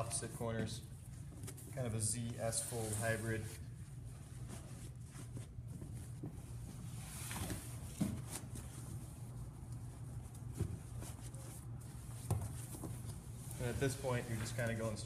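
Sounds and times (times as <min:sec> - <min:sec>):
fabric rustling and swishing: 0:10.1 - 0:15.0.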